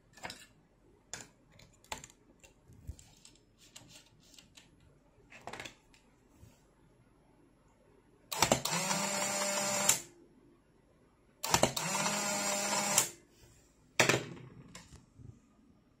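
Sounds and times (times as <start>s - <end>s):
camera motor whine: 8.6s - 10.0s, 11.6s - 13.1s.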